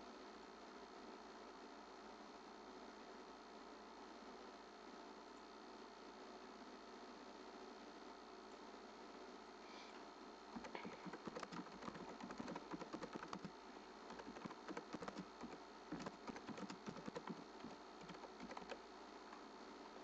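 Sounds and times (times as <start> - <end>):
computer keyboard typing: 10.6 - 13.5, 14.1 - 18.8.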